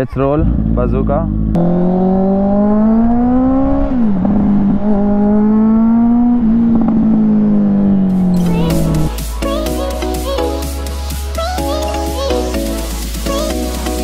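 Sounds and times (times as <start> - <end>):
motorcycle engine accelerating: 0.0 - 9.2.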